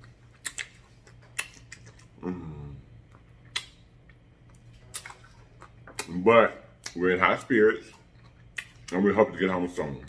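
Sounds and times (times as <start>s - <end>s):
mouth clicks and lip smacks: 0.0s - 2.2s, 3.1s - 4.2s
person humming: 2.2s - 2.9s.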